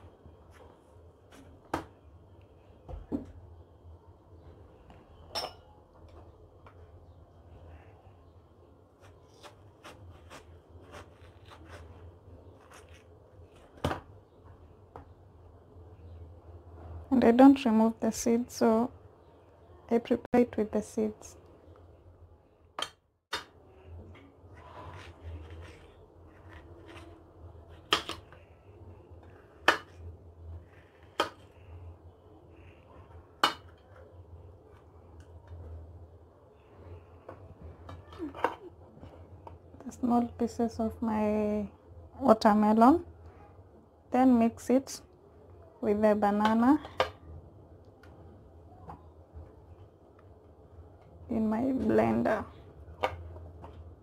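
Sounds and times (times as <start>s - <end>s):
knife cutting watermelon: 9.0s - 13.9s, 24.6s - 28.4s
soft scraping and handling: 23.9s - 35.8s.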